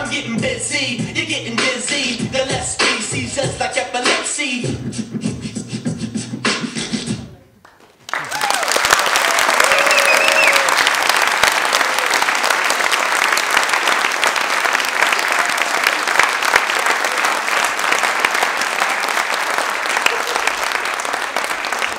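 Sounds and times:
audience applauding: 0:07.6 - 0:21.9.

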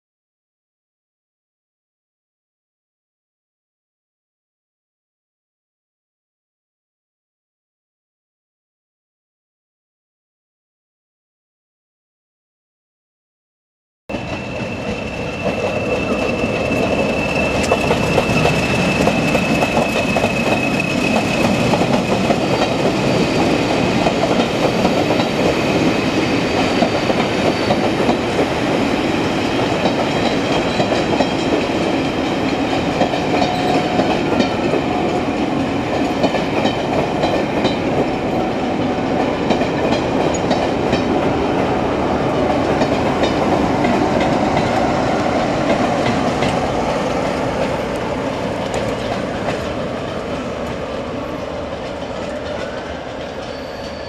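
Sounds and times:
high steady whistle: 0:14.1 - 0:28.0, 0:51.2 - 0:54.0.

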